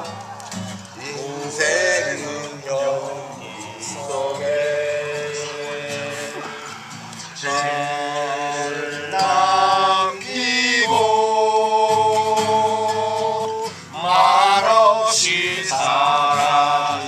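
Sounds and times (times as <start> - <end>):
acoustic guitar: 0.0 - 17.0
men singing together: 1.0 - 17.0.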